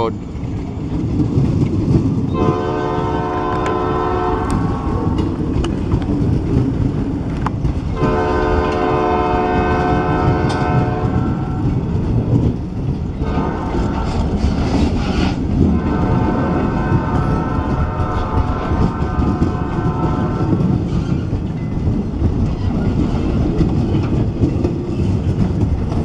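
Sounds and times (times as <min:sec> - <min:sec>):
freight train rumbling: 0:00.0 - 0:26.0
wheels clacking over rail joints: 0:00.0 - 0:26.0
locomotive horn blasts: 0:02.3 - 0:04.9, 0:08.0 - 0:11.7, 0:13.2 - 0:14.1, 0:15.7 - 0:20.7.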